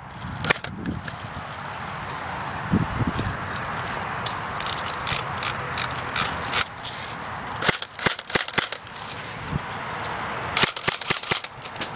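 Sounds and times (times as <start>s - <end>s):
dry leaves and gear rustling: 0.0s - 11.9s
airsoft guns firing: 7.6s - 8.8s, 10.6s - 11.5s.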